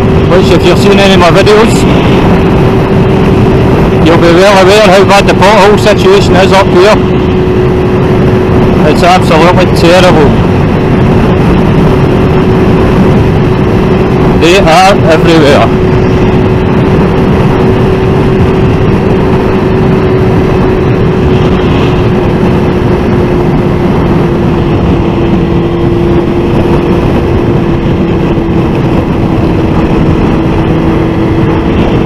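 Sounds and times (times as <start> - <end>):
motorcycle engine cruising: 0.0 - 32.0
wind noise on microphone: 0.0 - 32.0.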